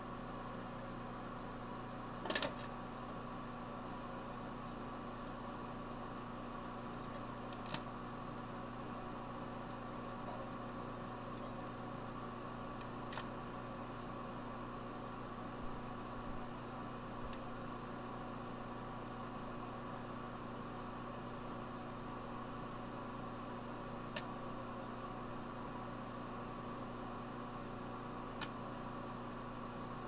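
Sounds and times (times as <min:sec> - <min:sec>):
microwave oven humming: 0:00.0 - 0:30.0.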